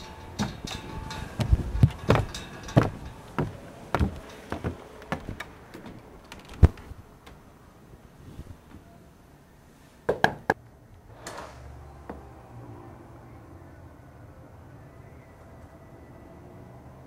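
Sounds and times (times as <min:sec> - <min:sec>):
footsteps on wooden stairs: 0:00.3 - 0:07.4.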